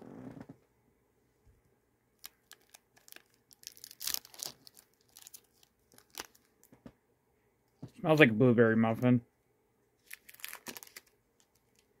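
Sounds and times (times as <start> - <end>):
wrapper tearing and crinkling: 2.2 - 6.6, 10.0 - 11.9.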